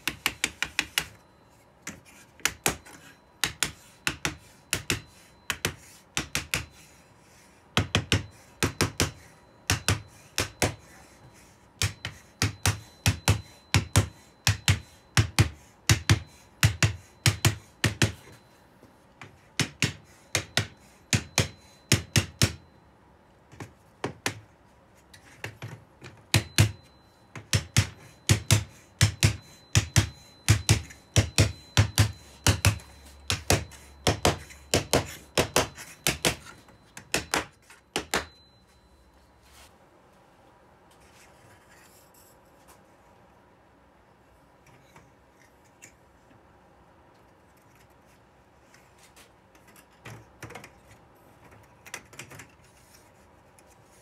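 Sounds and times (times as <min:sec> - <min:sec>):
hammer tapping on wooden block: 0:02.4 - 0:06.7.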